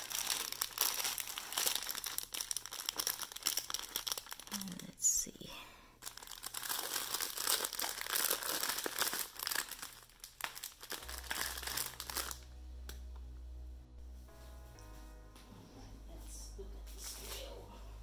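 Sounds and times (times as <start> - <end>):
plastic bag crinkling: 0.0 - 5.0, 6.0 - 12.5
low hum: 10.8 - 18.0.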